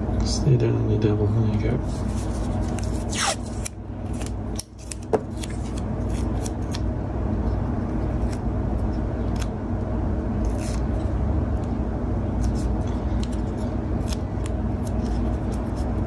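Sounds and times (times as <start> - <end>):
low motor hum: 0.0 - 16.0
scissors cutting tape: 2.7 - 6.9, 10.4 - 11.0, 12.4 - 15.9.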